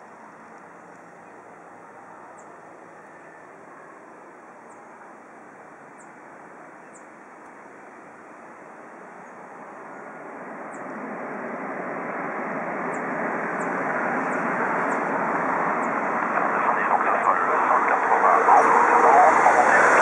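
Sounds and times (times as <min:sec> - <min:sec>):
jet engines rushing: 0:09.5 - 0:20.0.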